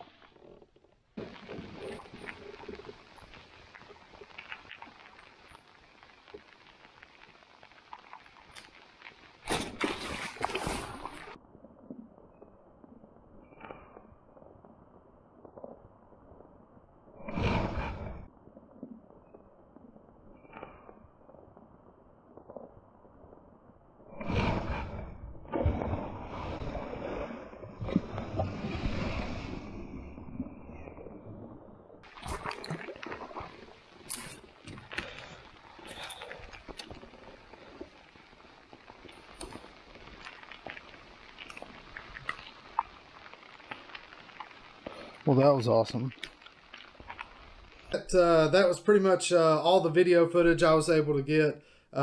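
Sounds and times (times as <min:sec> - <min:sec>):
light rain on water: 0:00.0 - 0:24.7, 0:31.0 - 0:52.0
fish splashing in water: 0:32.1 - 0:45.2.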